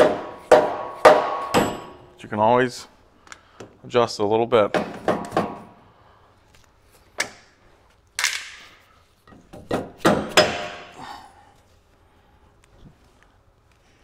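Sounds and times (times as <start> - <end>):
mallet knocking on metal: 0.0 - 2.0.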